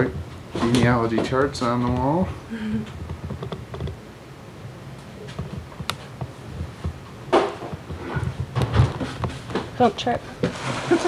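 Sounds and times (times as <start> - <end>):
faint clicks and knocks: 2.8 - 4.0, 5.0 - 9.7.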